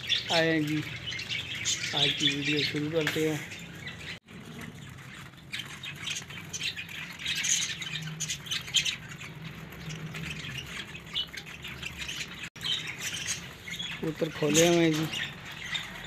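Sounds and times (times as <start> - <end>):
pigeon calls: 0.0 - 16.0
pigeons pecking on concrete: 3.9 - 16.0.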